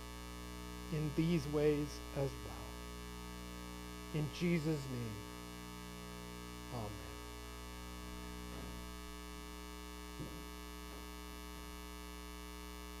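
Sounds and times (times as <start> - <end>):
faint mains hum: 0.0 - 13.0
soft knock: 10.2 - 10.6.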